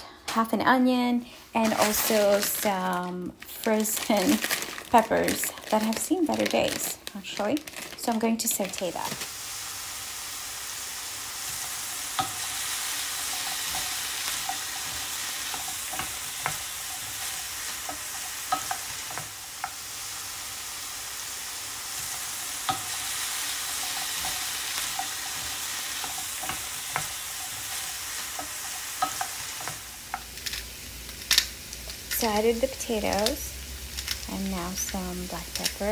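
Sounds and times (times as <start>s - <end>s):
vegetables sizzling in oil: 1.3s - 35.9s
oil popping and crackling: 1.6s - 35.9s
wooden spatula stirring: 11.5s - 19.8s, 21.9s - 30.6s.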